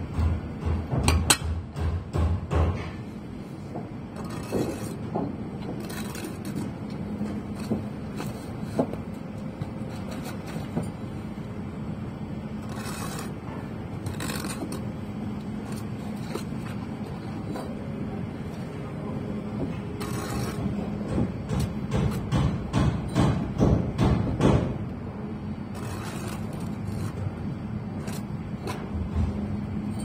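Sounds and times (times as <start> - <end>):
steady low hum: 0.0 - 30.0
short scrapes of mortar: 12.6 - 13.4, 14.0 - 14.8, 20.0 - 20.7, 25.7 - 27.2.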